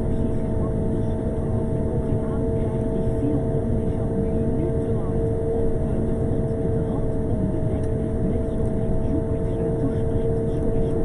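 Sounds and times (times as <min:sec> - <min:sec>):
constant machinery hum: 0:00.0 - 0:11.0.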